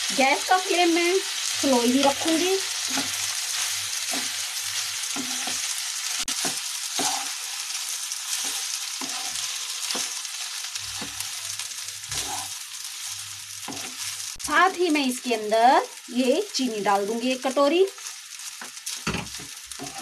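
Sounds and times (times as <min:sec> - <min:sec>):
rice sizzling in fat: 0:00.0 - 0:20.0
spatula scraping a pan: 0:02.0 - 0:14.2, 0:18.7 - 0:20.0.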